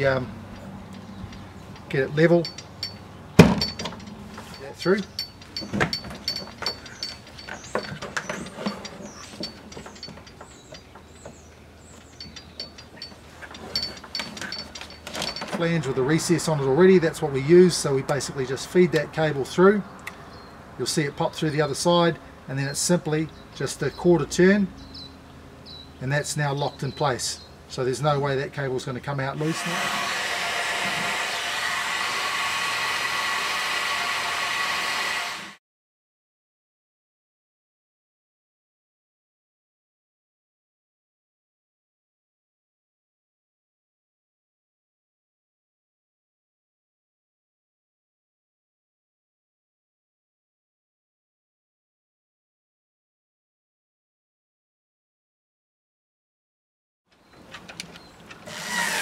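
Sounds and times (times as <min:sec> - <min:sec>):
heat gun blowing air: 0:29.4 - 0:35.6.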